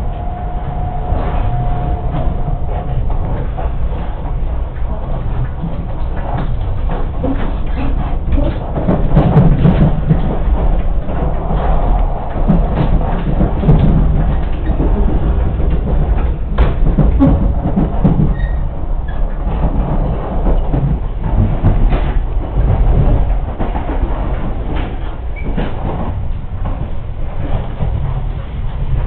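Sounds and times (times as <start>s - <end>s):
train wheels and motors rumbling: 0.0s - 29.0s.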